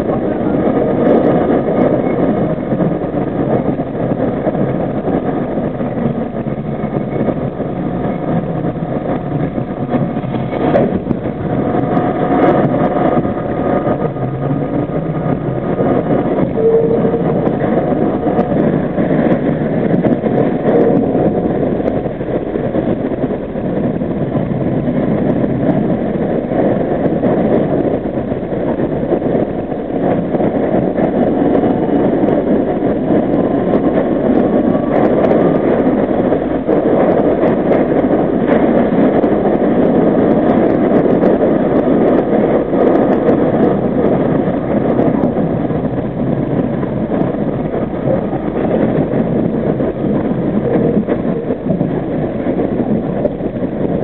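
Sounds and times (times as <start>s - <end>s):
subway wheels rumbling on rails: 0.0s - 54.0s
faint rising whine: 16.4s - 18.6s.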